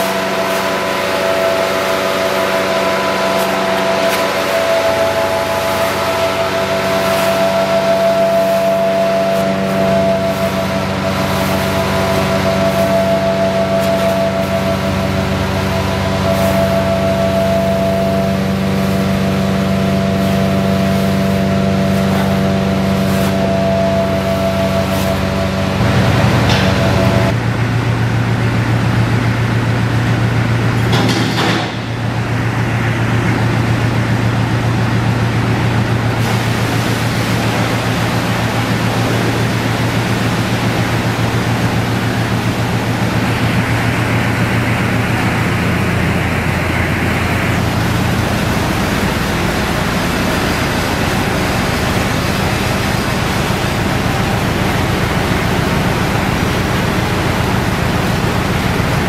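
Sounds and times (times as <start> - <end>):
vacuum truck humming: 0.0 - 59.0
liquid gushing into drain: 36.2 - 59.0.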